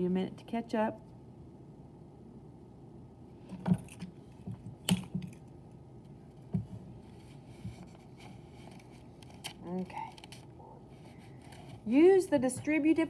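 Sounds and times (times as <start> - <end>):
faint steady background noise: 0.0 - 13.0.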